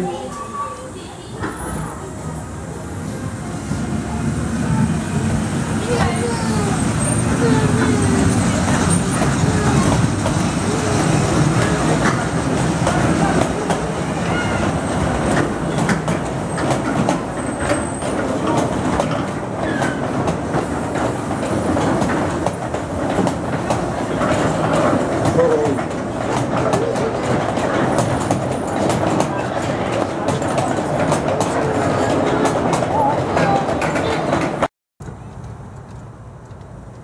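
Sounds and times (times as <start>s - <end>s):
train wheels rumbling on rails: 0.0s - 37.0s
clicks and knocks of wheels: 15.2s - 37.0s.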